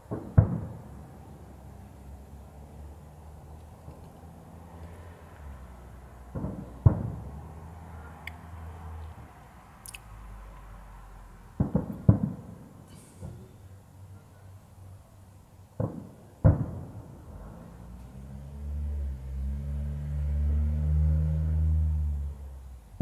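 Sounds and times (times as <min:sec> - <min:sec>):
distant fireworks bangs: 0:00.0 - 0:01.8, 0:06.2 - 0:08.2, 0:11.5 - 0:14.4, 0:15.7 - 0:18.1.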